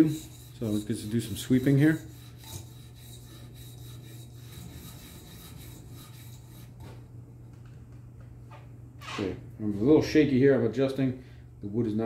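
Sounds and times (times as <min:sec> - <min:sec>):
sharpening stone rasping on knife: 0:00.0 - 0:06.7.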